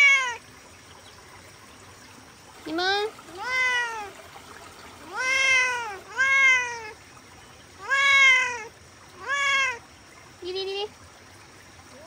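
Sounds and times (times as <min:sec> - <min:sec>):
cat meowing: 0:00.0 - 0:00.4, 0:03.3 - 0:04.1, 0:05.0 - 0:07.0, 0:07.8 - 0:09.8.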